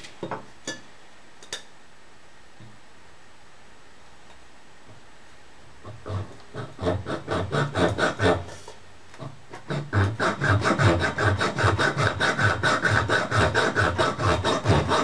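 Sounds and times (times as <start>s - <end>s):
hacksaw cutting aluminium: 6.5s - 8.6s, 9.5s - 15.0s.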